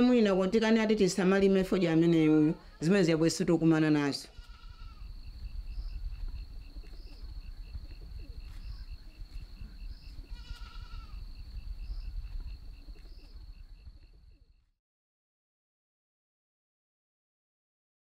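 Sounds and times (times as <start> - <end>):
goat bleating: 4.3 - 5.1, 10.2 - 11.2.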